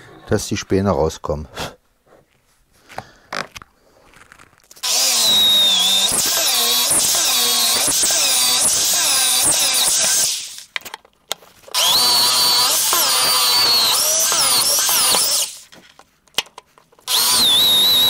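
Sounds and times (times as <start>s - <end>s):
electric drill boring into wood: 4.8s - 10.7s, 11.7s - 15.7s, 17.1s - 18.0s.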